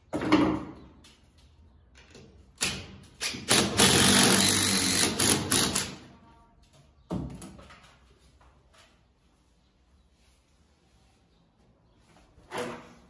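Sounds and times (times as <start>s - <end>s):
impact driver hammering rattle: 2.6s - 6.0s.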